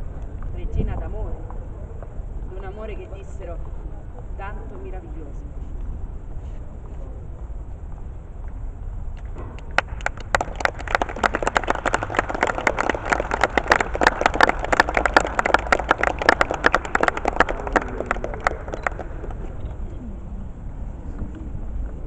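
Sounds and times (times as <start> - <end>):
audience applauding: 9.6 - 19.6.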